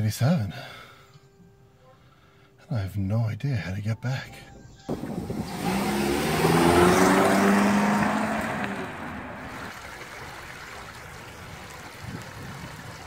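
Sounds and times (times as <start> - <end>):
car driving by: 4.9 - 9.8
stream babbling: 4.9 - 13.0.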